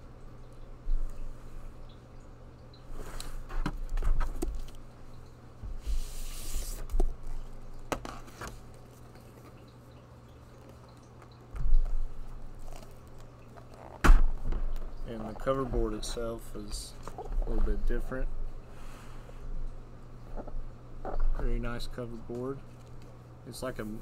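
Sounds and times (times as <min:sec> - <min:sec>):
low electrical hum: 0:00.0 - 0:24.0
paper rustling and sliding: 0:05.8 - 0:07.1.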